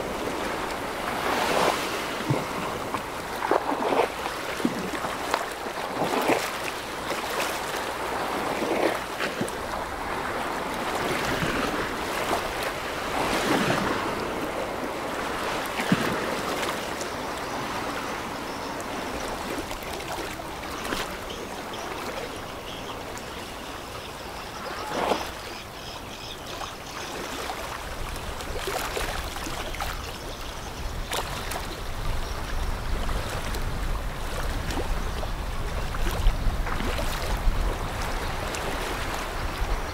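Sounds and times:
water rushing and splashing: 0:00.0 - 0:39.9.

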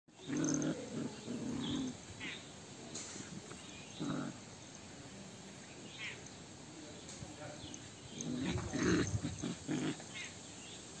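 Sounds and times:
puppies growling: 0:00.1 - 0:02.3, 0:03.2 - 0:04.5, 0:07.6 - 0:10.3.

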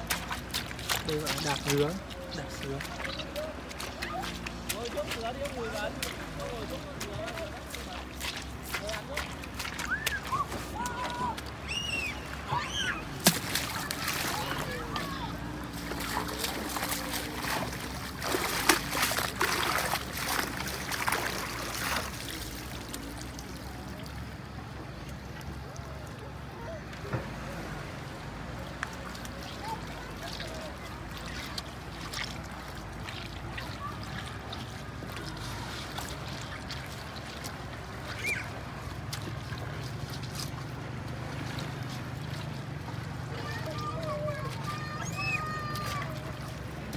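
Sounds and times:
water trickling: 0:00.0 - 0:26.4, 0:28.2 - 0:46.9
boat motor humming: 0:01.9 - 0:46.9
water pouring off net: 0:15.8 - 0:23.5.

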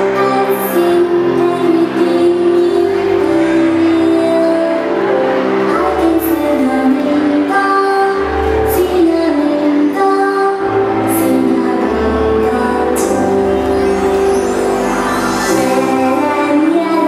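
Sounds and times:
woman singing: 0:00.0 - 0:17.0
bass notes: 0:11.2 - 0:17.0
hissy high hits: 0:13.0 - 0:16.3.

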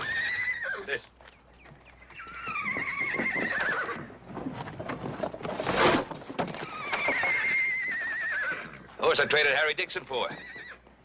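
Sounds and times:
horse whinnying: 0:00.0 - 0:01.0, 0:02.1 - 0:04.2, 0:05.8 - 0:09.0, 0:10.2 - 0:10.9
hooves clopping: 0:00.0 - 0:11.0.

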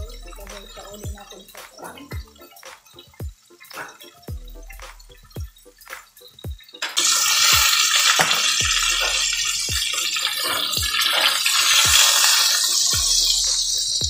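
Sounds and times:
background music with beat: 0:00.0 - 0:14.0
oil sizzling in roasting pan: 0:05.4 - 0:14.0.

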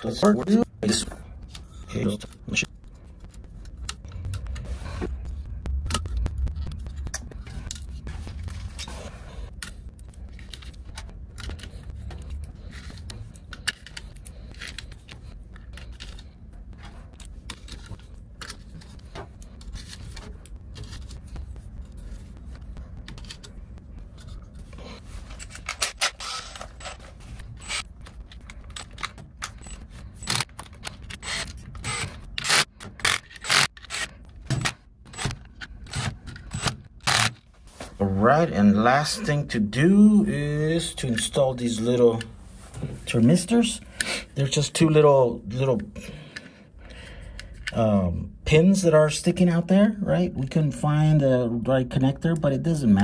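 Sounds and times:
low steady rumble: 0:00.6 - 0:32.4.

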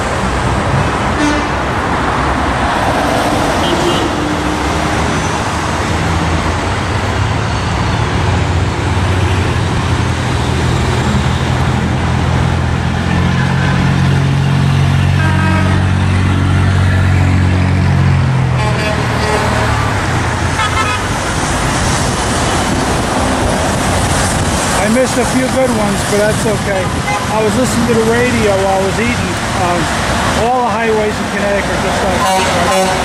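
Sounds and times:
road traffic passing: 0:00.0 - 0:33.0
vehicle engine hum: 0:00.0 - 0:33.0
car horn toots: 0:01.2 - 0:01.6, 0:03.6 - 0:04.2, 0:15.1 - 0:16.0, 0:18.6 - 0:19.9, 0:20.6 - 0:21.1, 0:26.8 - 0:27.4, 0:32.2 - 0:33.0.

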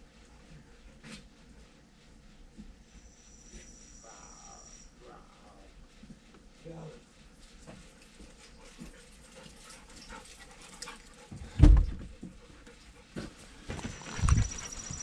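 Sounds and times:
dog noises: 0:12.1 - 0:15.0.

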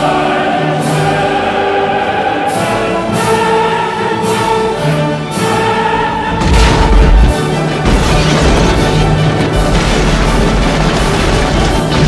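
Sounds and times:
choir singing held notes: 0:00.0 - 0:07.0
orchestral film music: 0:00.0 - 0:12.0.

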